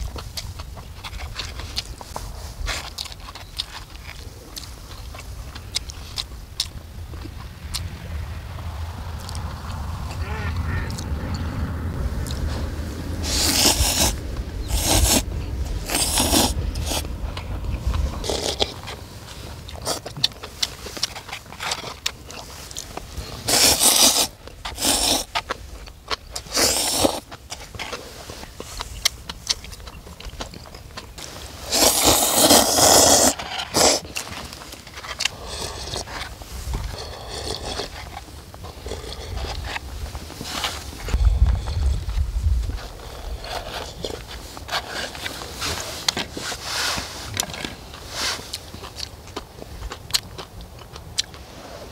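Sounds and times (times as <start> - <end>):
soft chewing: 0.0 - 7.9, 11.9 - 51.9
noodle slurps: 13.2 - 17.1, 22.4 - 25.4, 26.4 - 27.3, 31.6 - 34.3, 35.0 - 41.8.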